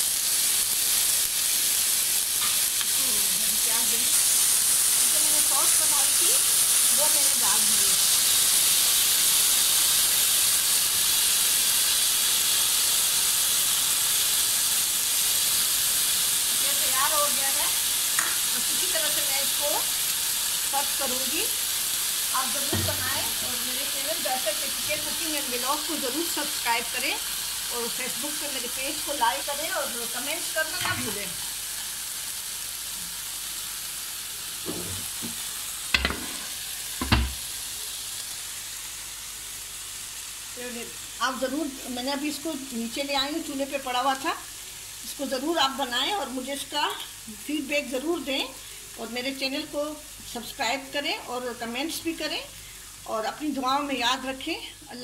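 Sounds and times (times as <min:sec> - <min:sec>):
food sizzling on a grill pan: 0:00.0 - 0:55.0
pan clunking on counter: 0:34.7 - 0:37.4.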